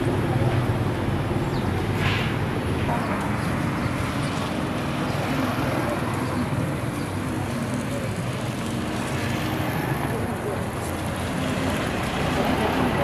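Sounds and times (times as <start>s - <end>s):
traffic rumble: 0.0s - 13.0s
faint voices: 2.8s - 13.0s.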